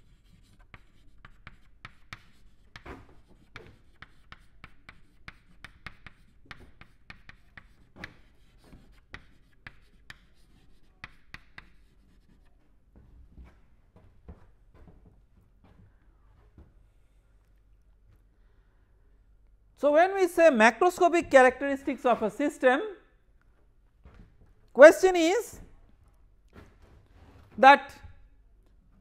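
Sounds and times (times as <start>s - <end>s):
chalk writing on chalkboard: 0.0s - 12.7s.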